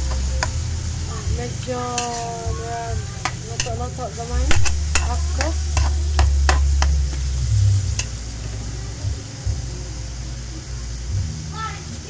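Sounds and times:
spatula scraping a wok: 0.0s - 8.3s
faint sizzle: 0.0s - 12.0s
low rumble: 0.0s - 12.0s.

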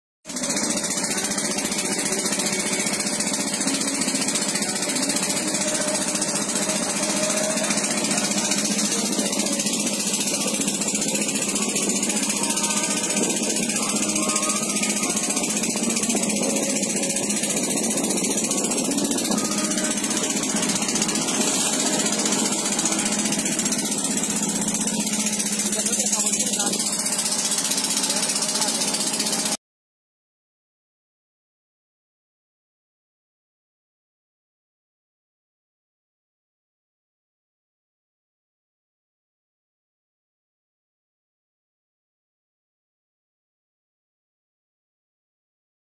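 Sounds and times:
boat engine chugging: 0.3s - 29.6s.

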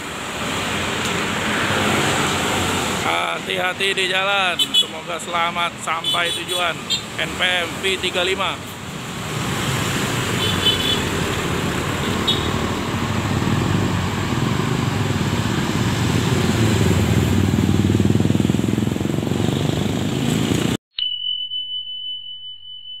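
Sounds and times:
bus diesel engine rumble: 10.0s - 19.2s
high electronic tone: 21.0s - 23.0s.

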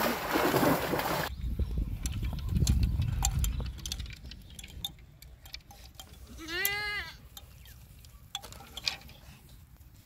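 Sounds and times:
bamboo rods rattling: 2.0s - 9.8s
livestock animal bleating: 6.4s - 7.2s.

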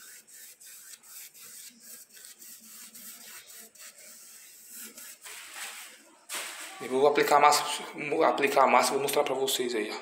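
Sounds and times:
hand scratching wall: 0.0s - 5.9s.

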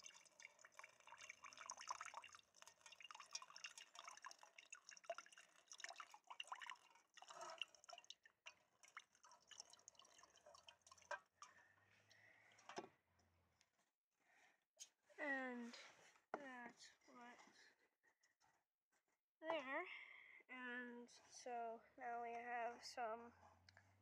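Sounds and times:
tea pouring into strainer: 0.0s - 11.4s
liquid dripping through strainer: 0.0s - 12.8s.

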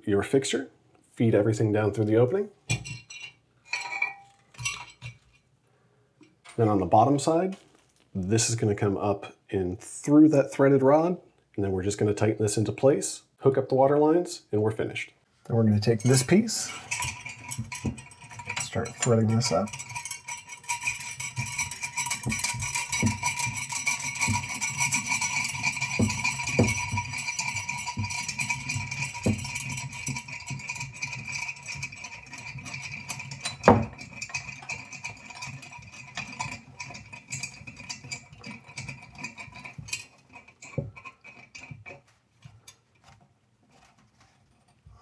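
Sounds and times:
music with percussion: 20.0s - 30.2s.

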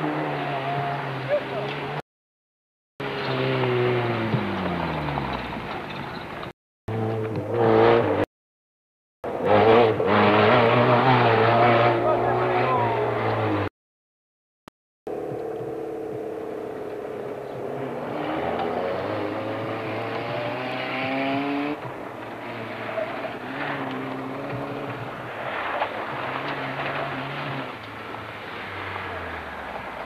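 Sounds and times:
rally car engine revving: 0.0s - 2.0s, 3.0s - 8.3s, 9.3s - 13.7s, 15.1s - 30.0s.

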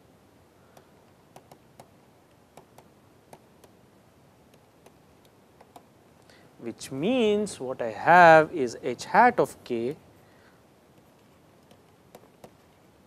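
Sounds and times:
stylus tapping on tablet screen: 0.7s - 3.8s, 4.5s - 5.9s, 10.9s - 12.9s.

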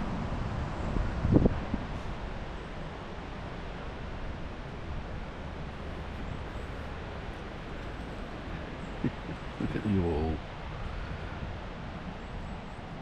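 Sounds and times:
wind on microphone: 0.0s - 2.3s.

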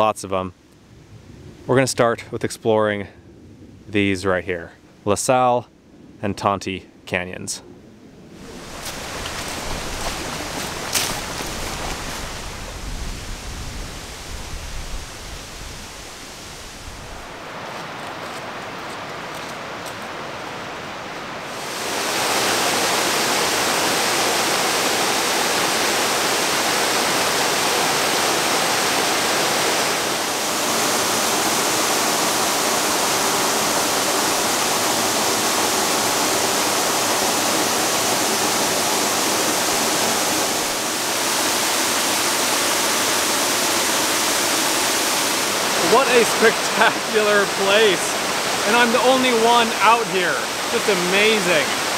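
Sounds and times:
waterfall rushing: 8.4s - 51.9s.

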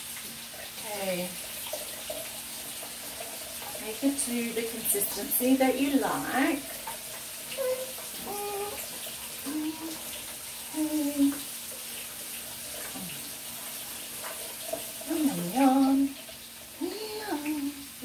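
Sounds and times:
woman humming: 7.6s - 8.8s, 9.4s - 10.0s, 10.7s - 11.4s, 12.9s - 13.2s, 15.1s - 16.1s, 16.8s - 17.9s.

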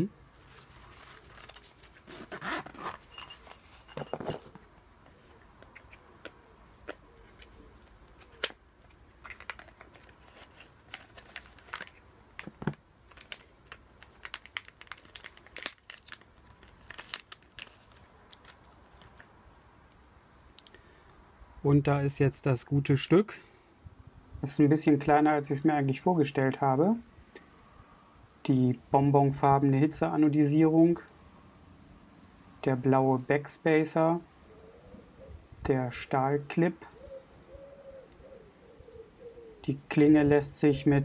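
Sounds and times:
plastic bag crinkling: 9.2s - 19.3s.

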